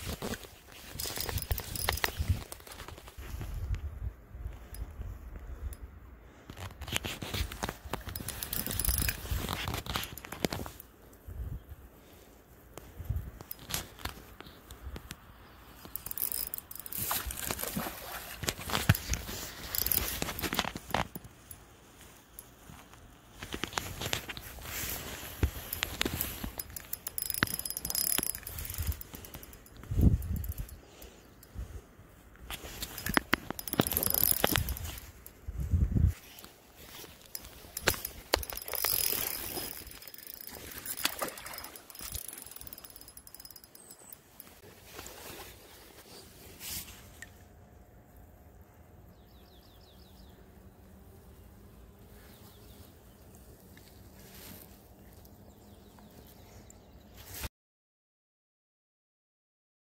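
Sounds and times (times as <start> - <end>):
fishing reel clicking: 0.8 - 2.9, 7.9 - 10.9, 15.8 - 17.8, 18.4 - 21.3, 25.4 - 31.0, 32.6 - 35.3, 36.9 - 44.6.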